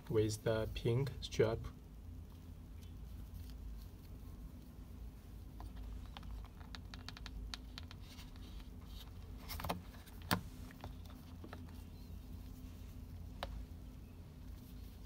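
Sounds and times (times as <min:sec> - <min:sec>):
low steady hum: 0:00.0 - 0:15.0
watch strap clicks and taps: 0:06.0 - 0:08.0.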